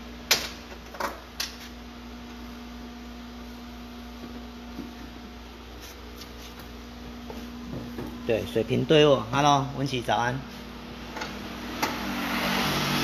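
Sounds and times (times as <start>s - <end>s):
steady electrical hum: 0.0s - 13.0s.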